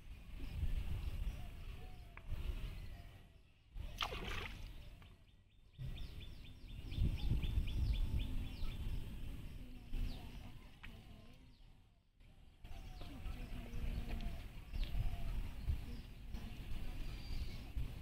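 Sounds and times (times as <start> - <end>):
bird chirping: 0.4 - 11.8.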